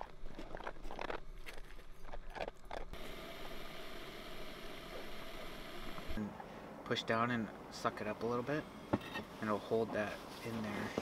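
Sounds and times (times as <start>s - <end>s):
gas stove hissing: 3.0s - 6.2s.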